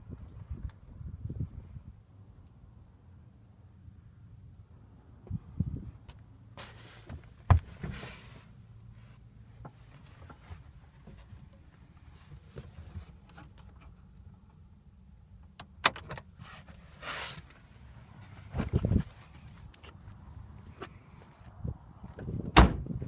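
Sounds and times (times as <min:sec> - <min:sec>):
knocks and clicks in car cabin: 0:07.1 - 0:07.9.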